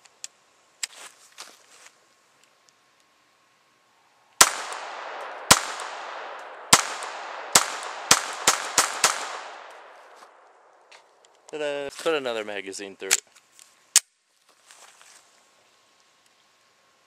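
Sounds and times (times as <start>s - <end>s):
pistol shots with echo: 4.4s - 10.0s.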